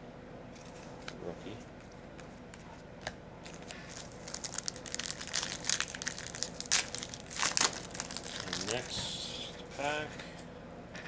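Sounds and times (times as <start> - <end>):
wrapper crinkling and tearing: 3.4 - 9.0.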